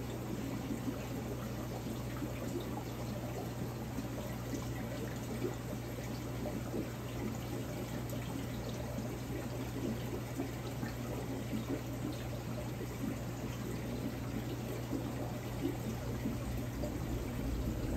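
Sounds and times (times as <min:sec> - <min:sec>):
water pouring and trickling: 0:00.1 - 0:17.9
low hum: 0:15.6 - 0:17.9.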